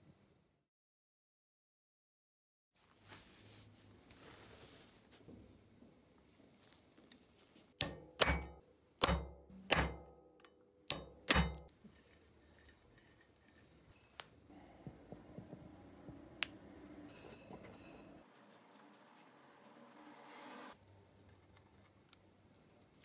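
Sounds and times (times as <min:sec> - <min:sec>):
metal-on-metal taps: 0:07.8 - 0:11.7
faint metal scraping: 0:11.0 - 0:14.4, 0:15.7 - 0:20.8.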